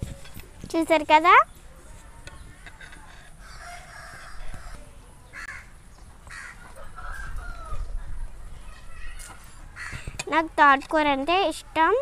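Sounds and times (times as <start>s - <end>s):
crows cawing: 3.4s - 7.8s, 9.7s - 10.2s.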